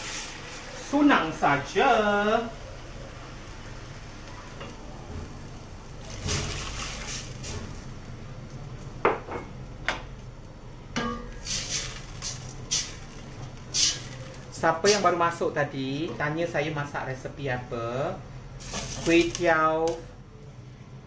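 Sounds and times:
liquid pouring into pot: 6.0s - 7.5s.

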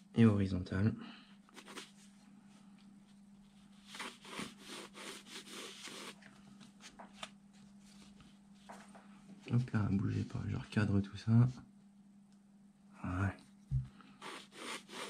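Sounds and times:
pencil scratching on paper: 3.8s - 6.2s, 14.2s - 15.0s.

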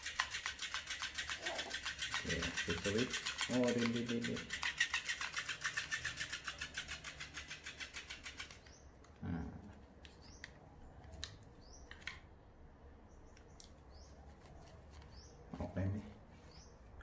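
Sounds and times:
toy motor rapid clicking: 0.0s - 8.8s.

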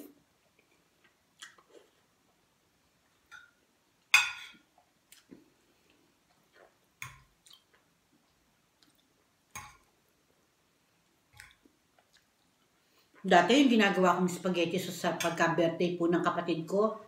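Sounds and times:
soft chewing: 0.0s - 3.7s, 4.5s - 13.2s.

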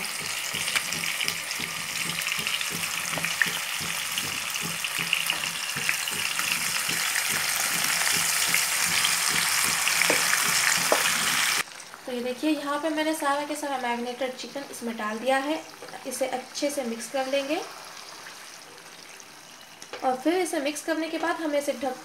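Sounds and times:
utensil clicking against pan: 0.0s - 11.4s
oil sizzling and crackling: 0.0s - 21.8s.

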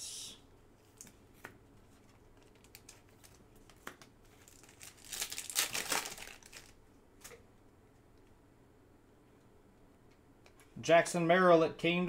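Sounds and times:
foil wrapper crinkling: 2.4s - 7.4s.

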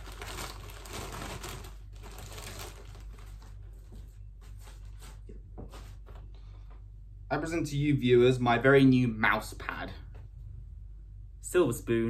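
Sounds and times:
package wrapping tearing and crinkling: 0.0s - 3.6s.

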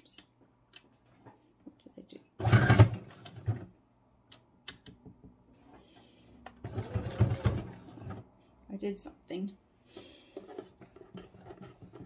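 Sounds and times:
sewing machine running: 6.6s - 7.9s.

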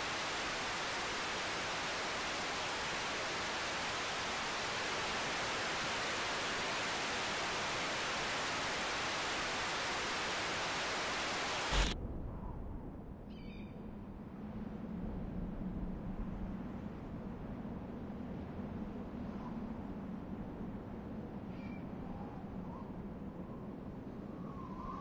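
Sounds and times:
television static hiss: 0.0s - 12.0s.

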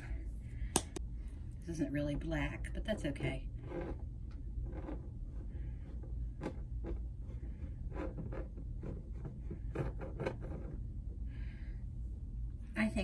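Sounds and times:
low room hum: 0.0s - 13.0s
paintbrush scratching on cardboard: 3.6s - 10.8s.

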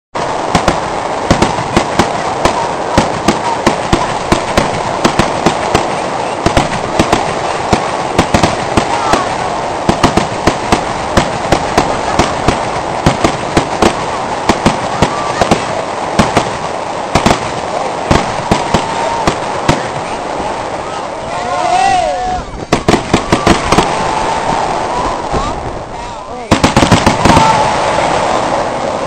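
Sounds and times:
fireworks bangs and crackles: 0.1s - 29.0s.

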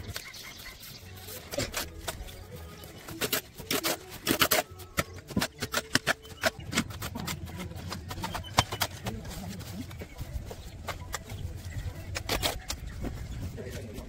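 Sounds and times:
trowel scraping mortar pan: 0.0s - 10.2s.

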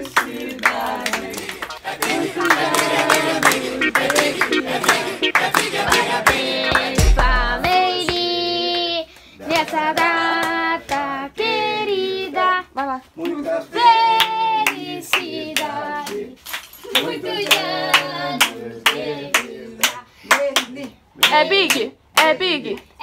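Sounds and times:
people clapping in time: 0.0s - 8.9s, 17.0s - 22.9s
person singing: 0.0s - 10.0s.

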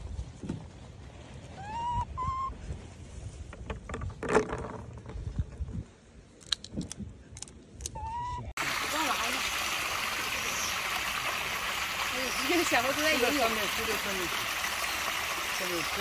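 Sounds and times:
monkey coo calls: 1.6s - 2.5s.

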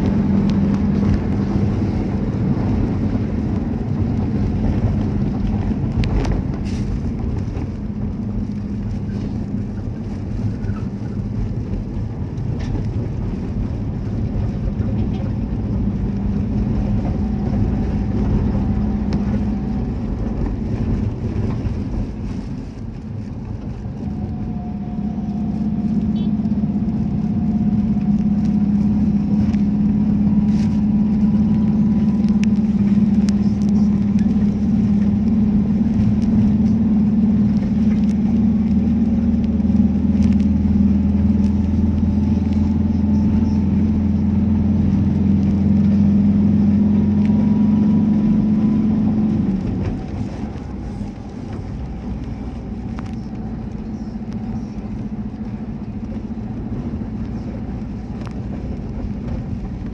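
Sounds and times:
car engine hum: 0.0s - 59.9s
road rumble: 0.0s - 59.9s.

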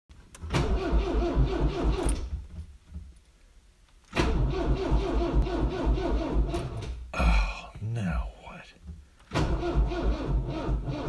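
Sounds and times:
car engine cranking: 0.3s - 2.6s, 4.1s - 7.1s, 9.2s - 11.0s.

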